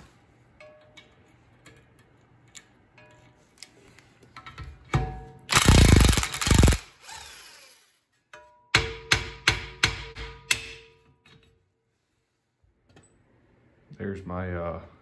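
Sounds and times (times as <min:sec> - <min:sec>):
impact wrench rattling: 0:05.5 - 0:07.3.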